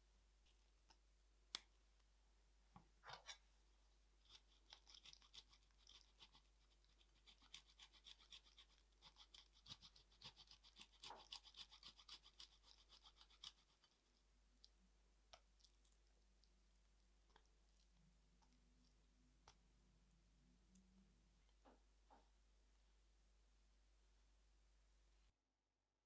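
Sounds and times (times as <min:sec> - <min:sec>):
cheese grating rasp: 0:04.2 - 0:14.0.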